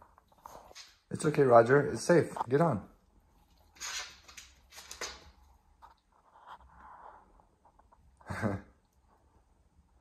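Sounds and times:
dog claws clicking on hard floor: 3.7 - 6.0.

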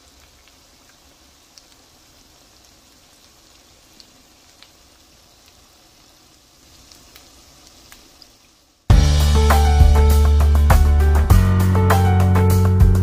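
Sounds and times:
oil popping and crackling: 0.0 - 10.2
oil sizzling: 0.0 - 13.0.

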